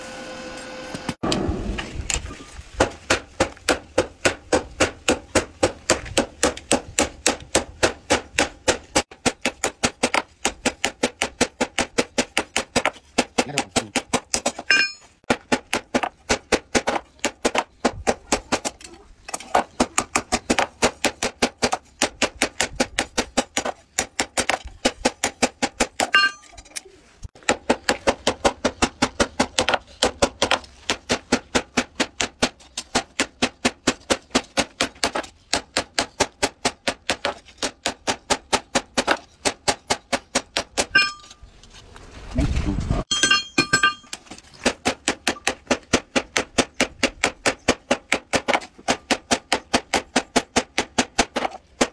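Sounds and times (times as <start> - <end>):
hammer striking steel on anvil: 14.7 - 15.1, 26.0 - 26.6, 40.8 - 41.4, 43.1 - 44.2
anvil ringing: 14.7 - 15.2, 26.1 - 26.6, 40.9 - 41.4, 43.1 - 44.2.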